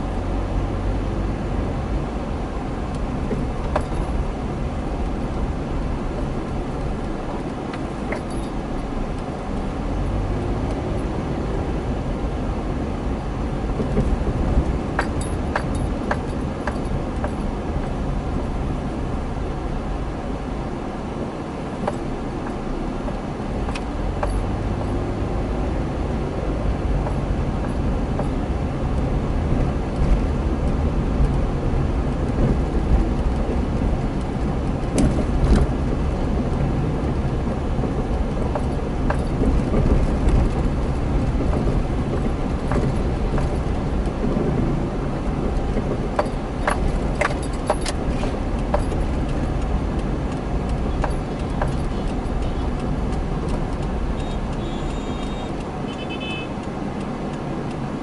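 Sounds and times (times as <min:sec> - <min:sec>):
car engine and road noise: 0:00.0 - 0:58.0
sharp clicks or rattles: 0:45.6 - 0:55.7.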